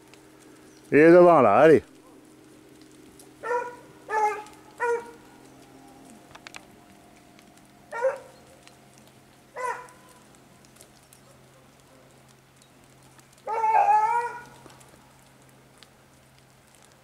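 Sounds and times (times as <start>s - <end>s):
hound yelping and baying: 3.3s - 6.2s, 7.8s - 8.8s, 9.4s - 10.3s, 13.4s - 14.7s.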